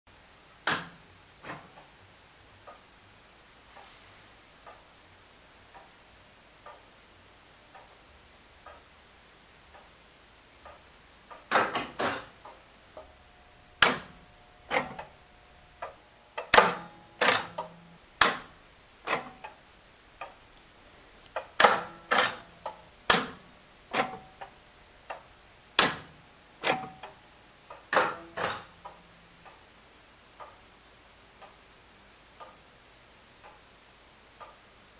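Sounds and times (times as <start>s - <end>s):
clock ticking metallic clicks: 0.6s - 2.0s, 5.6s - 7.0s, 7.6s - 8.9s, 9.7s - 30.7s, 31.3s - 31.7s, 32.3s - 32.7s, 34.3s - 34.9s.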